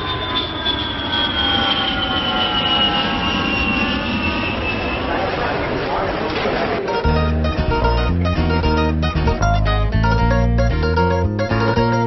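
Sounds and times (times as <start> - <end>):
jet airplane flying over: 0.0 - 7.0.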